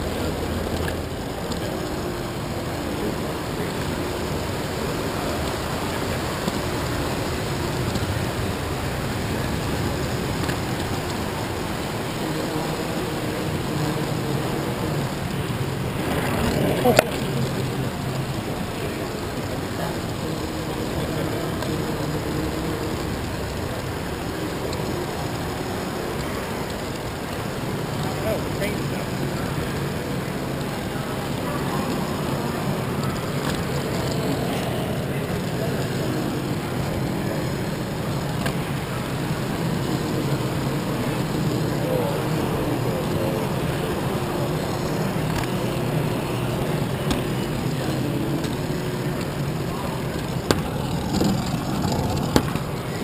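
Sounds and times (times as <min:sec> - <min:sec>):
murmur of crowd voices: 0:00.0 - 0:53.0
toy train motor and wheels whirring: 0:00.0 - 0:53.0.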